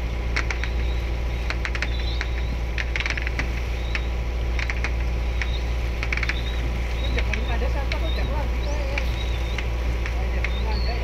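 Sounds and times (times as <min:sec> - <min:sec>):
boat engine humming: 0:00.0 - 0:11.0
sharp clicks and rattles: 0:00.3 - 0:06.5.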